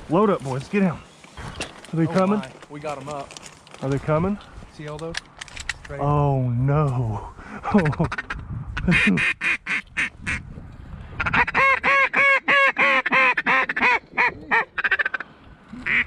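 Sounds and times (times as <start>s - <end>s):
duck call clucking and quacking: 7.8s - 10.4s, 11.2s - 16.0s.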